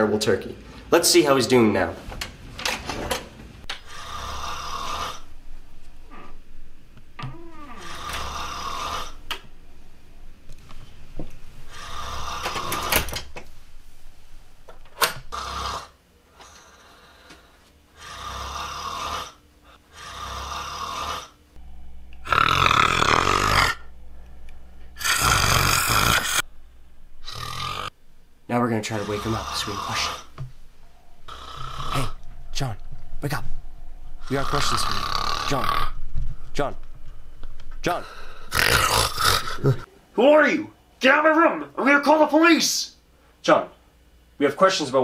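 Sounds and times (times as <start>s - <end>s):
man snoring: 3.8s - 5.3s, 7.3s - 9.2s, 11.7s - 13.0s, 15.3s - 17.4s, 18.0s - 24.1s, 24.9s - 26.5s, 27.2s - 28.0s, 28.9s - 30.4s, 31.3s - 32.3s, 34.2s - 36.0s, 38.1s - 39.9s.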